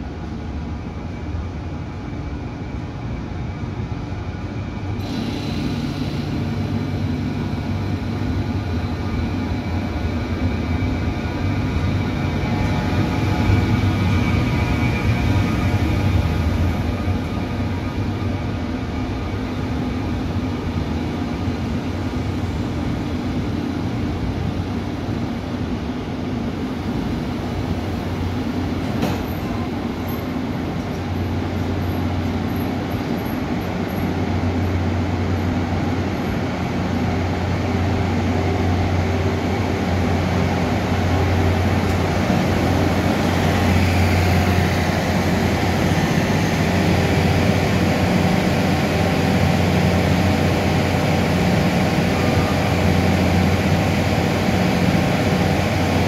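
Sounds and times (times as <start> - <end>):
diesel locomotive engine hum: 0.0 - 56.0
train coaches rolling over rails: 27.8 - 34.7.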